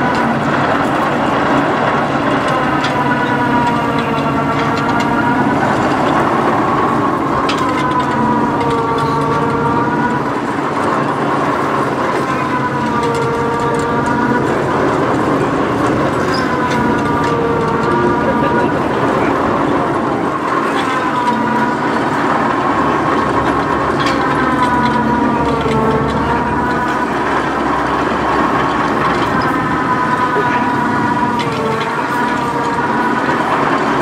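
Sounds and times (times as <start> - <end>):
diesel engine revving: 0.0 - 34.0.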